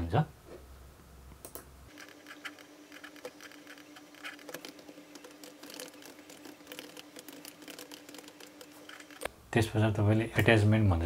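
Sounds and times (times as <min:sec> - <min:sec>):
faint steady hum: 0:00.0 - 0:11.0
keyboard typing clicks: 0:01.4 - 0:09.3.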